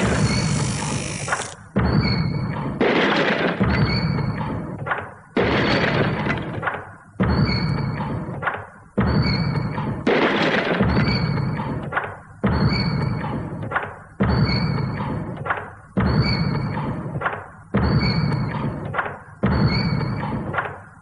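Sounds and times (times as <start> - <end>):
stamping machine pounding: 0.0 - 2.0.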